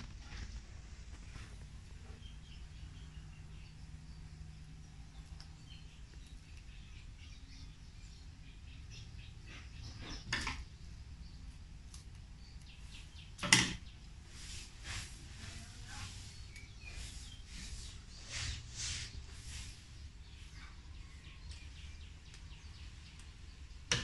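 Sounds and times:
leaf strips rustling and crackling: 0:11.4 - 0:24.0
loud sharp rustles: 0:14.2 - 0:20.1.

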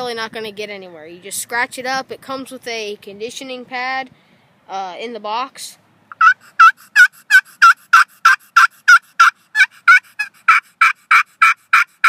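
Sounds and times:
raspy turkey call yelps: 0:06.1 - 0:12.0.

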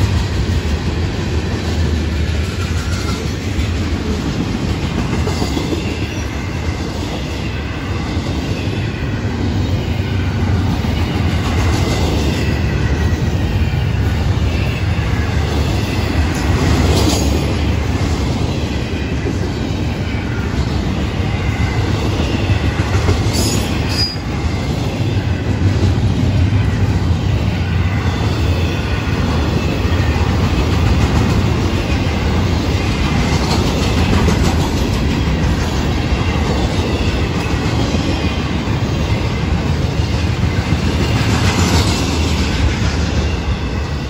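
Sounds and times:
train wheels rumbling on rail: 0:00.0 - 0:44.0
high wheel squeal: 0:23.4 - 0:24.4.

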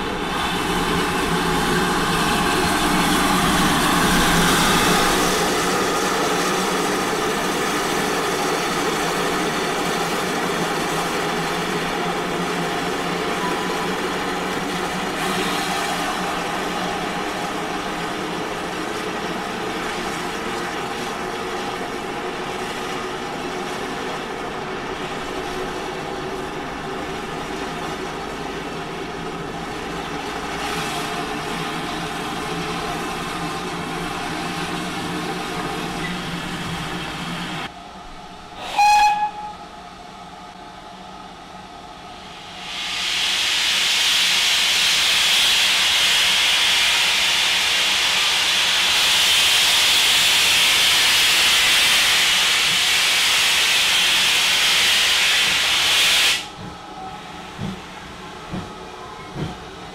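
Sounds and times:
steam hissing: 0:00.0 - 0:20.2, 0:42.3 - 0:56.6
steam locomotive whistle: 0:38.6 - 0:39.7, 0:53.7 - 0:56.5.

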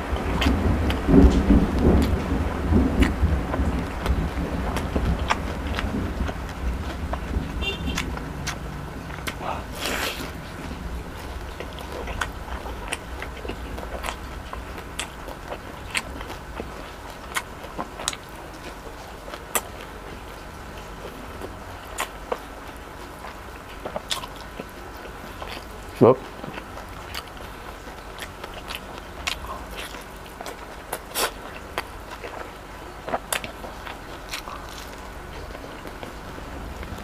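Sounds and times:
chewing fried chicken: 0:00.0 - 0:37.0
rolling thunder: 0:00.2 - 0:09.2
sharp mouth clicks: 0:09.2 - 0:10.4.

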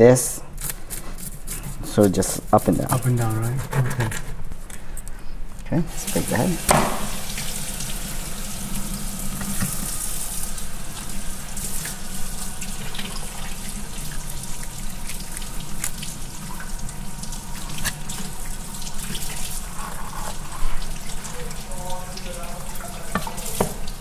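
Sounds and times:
steady rush of running water: 0:06.0 - 0:24.0
knife crunching through fish bone: 0:14.5 - 0:16.1.

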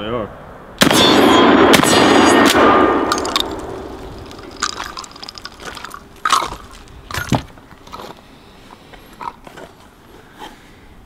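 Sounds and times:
gunshot echo: 0:00.8 - 0:04.0
shotgun handling clicks and knocks: 0:03.1 - 0:08.1.

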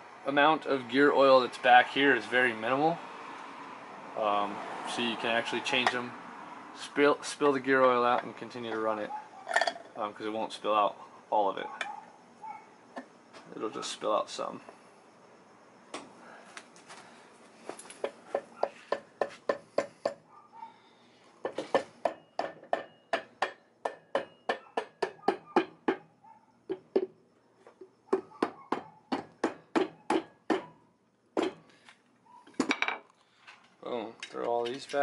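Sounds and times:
mallet knocking on metal cover: 0:21.5 - 0:26.0, 0:28.2 - 0:30.7.

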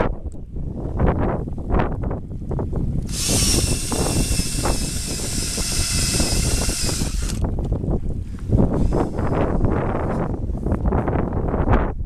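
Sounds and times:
wind rumbling on microphone: 0:00.0 - 0:12.0
electric drill boring wood: 0:03.0 - 0:07.5, 0:08.8 - 0:09.7.

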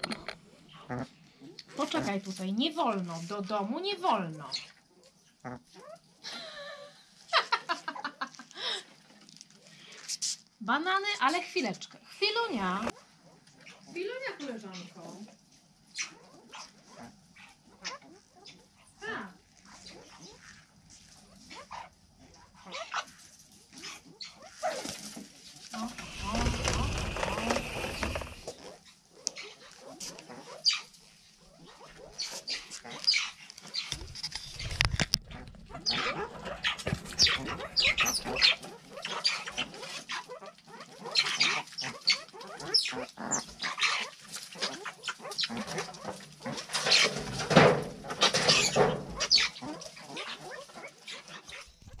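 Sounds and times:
mongooses chirping: 0:04.4 - 0:04.8, 0:25.8 - 0:46.1, 0:48.5 - 0:52.0
scratchy rustling: 0:24.6 - 0:28.5.

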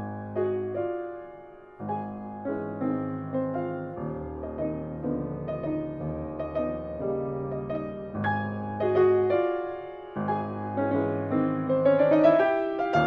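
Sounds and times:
piano instrumental music: 0:00.0 - 0:13.0.

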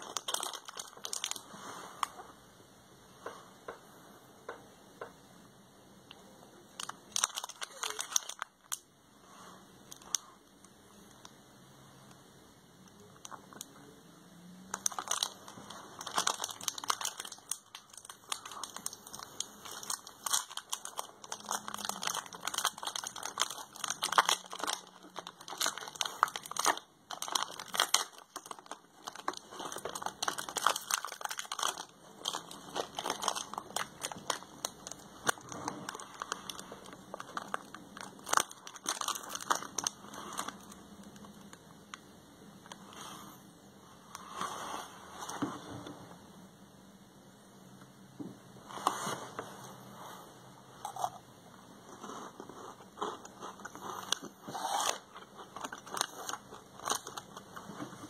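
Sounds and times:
wrapper crinkling and tearing: 0:00.0 - 0:02.1, 0:06.7 - 0:08.8, 0:14.6 - 0:41.6, 0:52.7 - 0:57.9.

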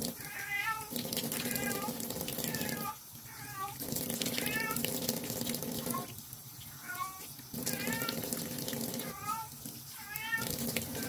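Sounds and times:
running tap water splashing: 0:00.0 - 0:11.0
cat meowing: 0:00.2 - 0:04.8, 0:05.9 - 0:06.1, 0:06.7 - 0:08.2, 0:09.0 - 0:11.0.

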